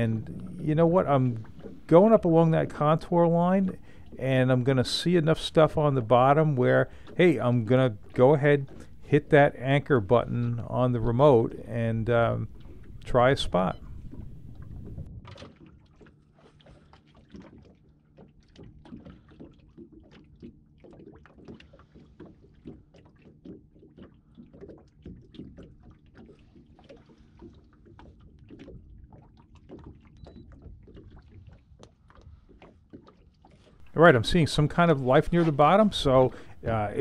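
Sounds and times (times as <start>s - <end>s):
faint low steady hum: 0.0s - 15.2s, 33.8s - 37.0s
water lapping against boat hull: 0.0s - 37.0s.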